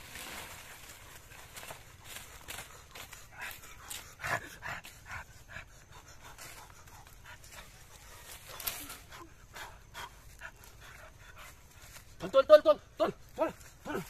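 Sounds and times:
breathy puffs: 0:02.1 - 0:12.1.

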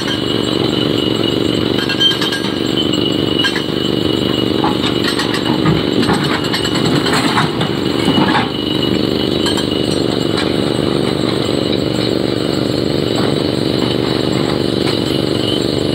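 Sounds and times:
diesel engine running: 0:00.0 - 0:15.9
clattering: 0:04.6 - 0:12.1.

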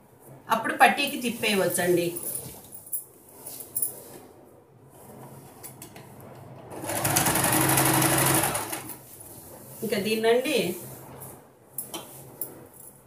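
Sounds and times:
sewing machine stitching: 0:06.7 - 0:09.0.

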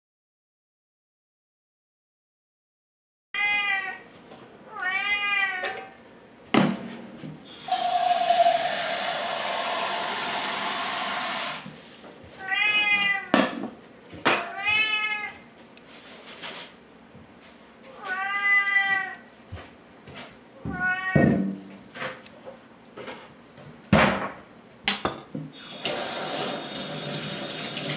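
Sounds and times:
cats meowing: 0:03.4 - 0:04.0, 0:04.7 - 0:05.9, 0:12.4 - 0:13.4, 0:14.4 - 0:15.4, 0:17.9 - 0:19.3, 0:20.6 - 0:21.4.

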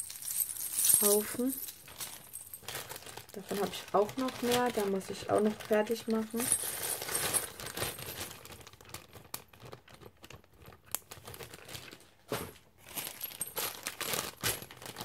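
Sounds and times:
resin pendants clinking: 0:00.0 - 0:02.8
packaging rustling: 0:00.0 - 0:15.0.

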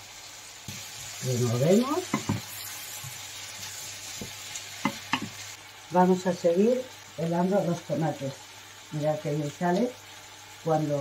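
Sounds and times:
vegetables sizzling in oil: 0:00.0 - 0:11.0
wooden spoon knocking pan: 0:02.1 - 0:02.5, 0:04.2 - 0:05.4.

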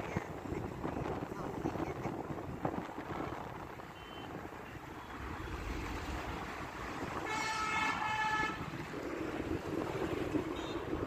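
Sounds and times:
wind and road noise: 0:00.0 - 0:11.0
vehicle horn honking: 0:07.2 - 0:08.7, 0:10.5 - 0:11.0.

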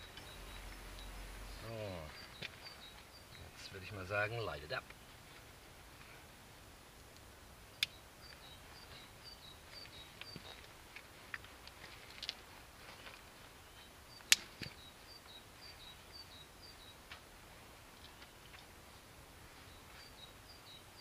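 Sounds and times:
small bird singing: 0:00.0 - 0:05.2, 0:07.8 - 0:10.7, 0:13.6 - 0:17.1, 0:19.6 - 0:21.0.

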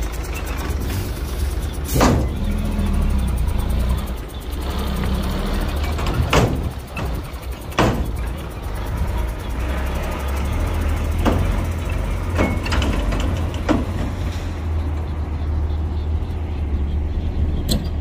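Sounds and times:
diesel machinery rumbling: 0:00.0 - 0:18.0
sharp knocks: 0:05.9 - 0:08.3.

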